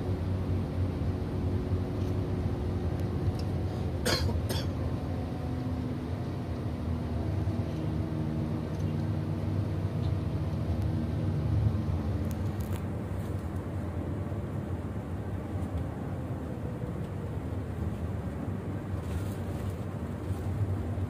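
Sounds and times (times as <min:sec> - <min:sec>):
bus engine and road noise: 0:00.0 - 0:21.0.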